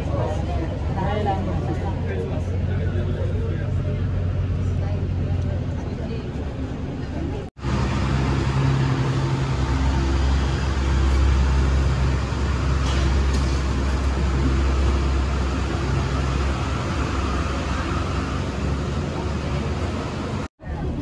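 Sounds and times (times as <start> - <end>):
bus engine humming: 0.0 - 21.0
road noise: 0.0 - 21.0
rain noise: 7.6 - 20.5.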